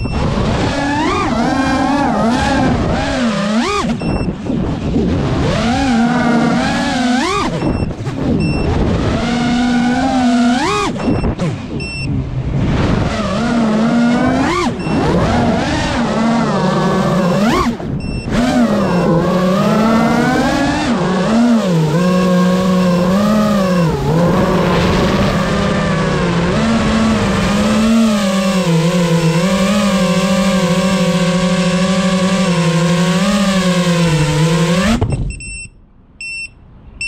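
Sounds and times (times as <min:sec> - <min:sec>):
quadcopter motors whining: 0:00.0 - 0:12.1, 0:13.0 - 0:35.1.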